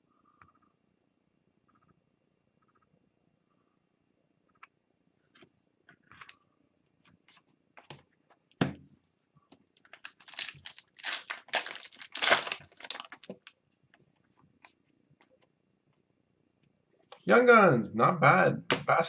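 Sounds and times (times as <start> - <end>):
foil wrapper tearing and crinkling: 9.8 - 13.5.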